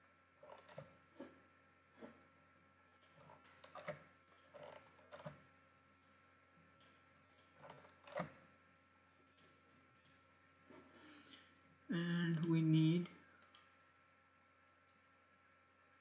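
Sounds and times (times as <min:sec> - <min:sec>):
faint steady hum: 0:00.0 - 0:16.0
computer mouse clicks: 0:03.0 - 0:05.4, 0:06.8 - 0:08.4, 0:13.4 - 0:13.8.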